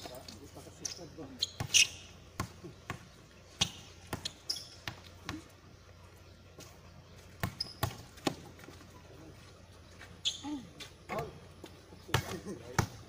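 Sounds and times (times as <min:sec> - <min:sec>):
basketball bouncing on concrete: 0:01.4 - 0:05.5, 0:07.4 - 0:08.7, 0:12.1 - 0:13.0.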